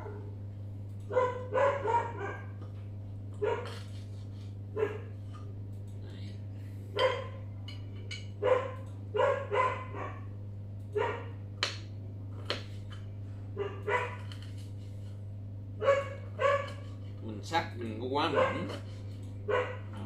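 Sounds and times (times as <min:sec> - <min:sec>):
dog barking: 0:01.1 - 0:02.6, 0:03.4 - 0:03.8, 0:04.8 - 0:05.1, 0:07.0 - 0:07.4, 0:08.4 - 0:10.3, 0:11.0 - 0:11.4, 0:13.6 - 0:14.3, 0:15.8 - 0:16.8, 0:18.2 - 0:18.8, 0:19.5 - 0:20.0.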